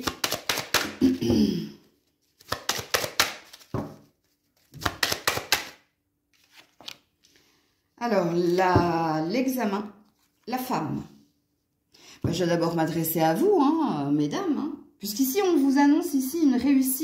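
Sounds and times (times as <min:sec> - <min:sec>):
cards being shuffled: 0:00.0 - 0:01.0, 0:02.0 - 0:07.5.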